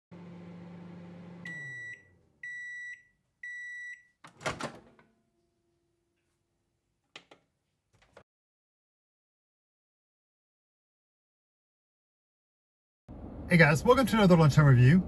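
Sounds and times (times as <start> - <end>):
microwave oven humming: 0.1 - 4.1
microwave completion beeps: 0.5 - 4.2
microwave door opening clatter: 4.3 - 5.1.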